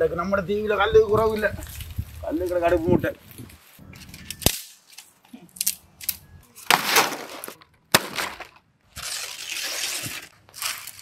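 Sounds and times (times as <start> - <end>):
twigs crackling and rustling: 1.0 - 7.6, 8.2 - 11.0
dry branches snapping: 3.4 - 11.0.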